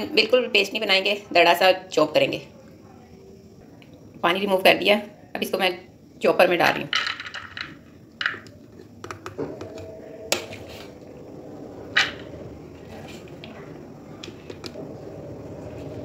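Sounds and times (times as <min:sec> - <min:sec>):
low steady hum: 0:07.8 - 0:16.0.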